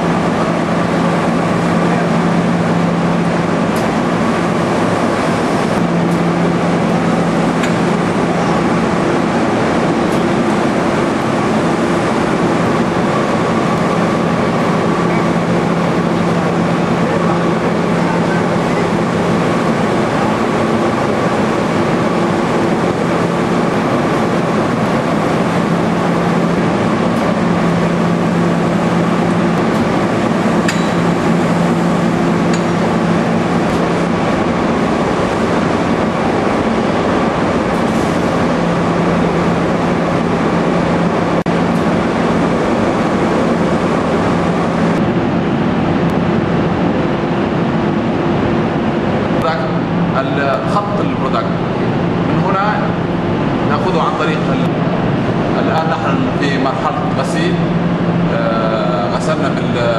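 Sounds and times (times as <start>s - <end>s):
machinery droning: 0.0s - 59.9s.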